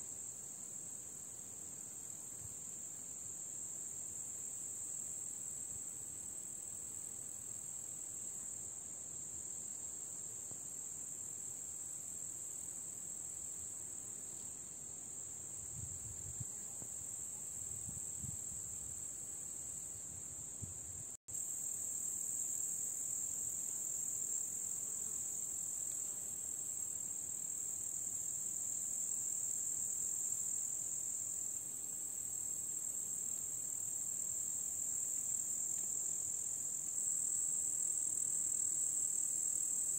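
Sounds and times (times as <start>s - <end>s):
crickets chirring: 14.2s - 39.9s.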